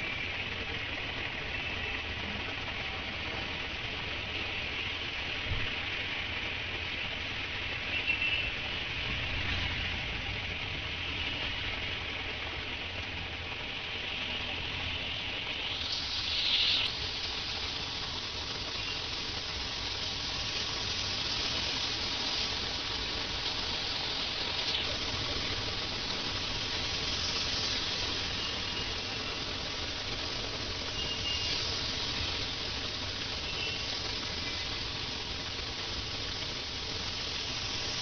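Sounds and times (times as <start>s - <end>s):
heavy rain on a flooded road: 0.0s - 38.0s.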